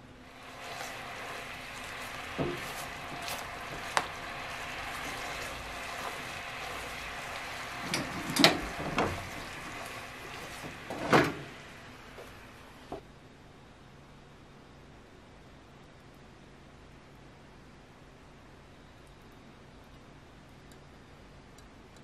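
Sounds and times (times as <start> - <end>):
sauce bubbling: 0.2 - 13.0
spatula stirring sauce in pan: 0.3 - 13.0.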